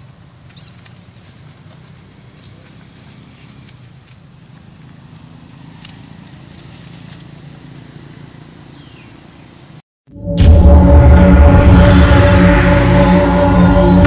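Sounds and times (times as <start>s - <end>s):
steady low rumble: 10.1s - 14.0s.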